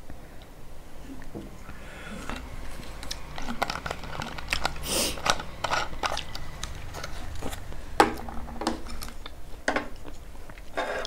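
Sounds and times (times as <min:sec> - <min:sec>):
plastic bottle crinkling: 0:01.5 - 0:09.4.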